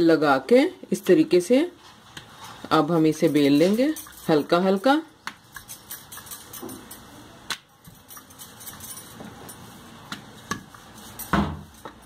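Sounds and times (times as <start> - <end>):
rolling pin rolling dough: 5.2 - 12.0.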